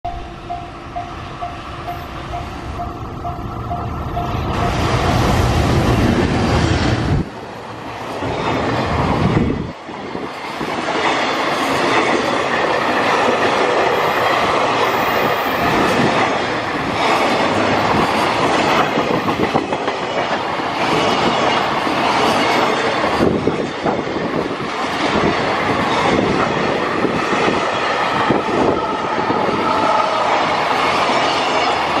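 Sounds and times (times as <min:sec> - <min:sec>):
electric locomotive rumble: 0:00.1 - 0:32.0
freight train rolling past: 0:00.1 - 0:32.0.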